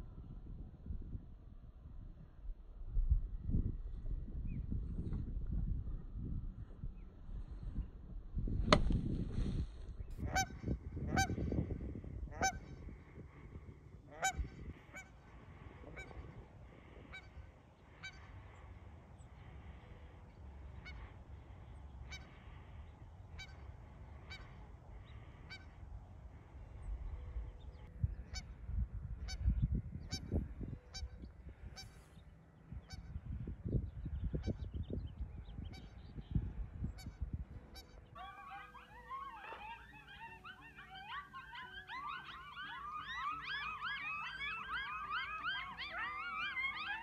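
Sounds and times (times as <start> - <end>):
waterfowl honking: 10.2 - 11.4, 12.3 - 12.8, 14.1 - 18.8, 19.4 - 26.4, 37.0 - 47.0.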